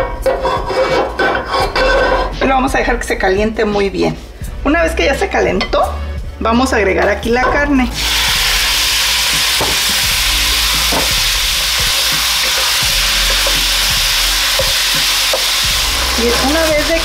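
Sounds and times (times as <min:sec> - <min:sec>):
meat sizzling in hot oil: 0:08.0 - 0:17.0.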